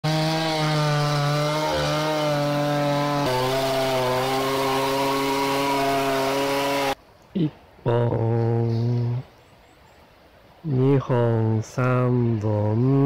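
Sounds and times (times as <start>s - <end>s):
chainsaw cutting log: 0.0s - 7.0s.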